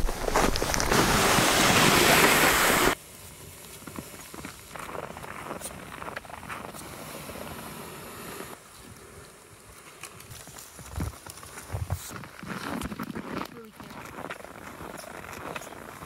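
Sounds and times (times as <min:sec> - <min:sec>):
footsteps crunching in snow: 0:00.0 - 0:07.8, 0:09.8 - 0:16.0
sled runners hissing on snow: 0:00.0 - 0:12.1.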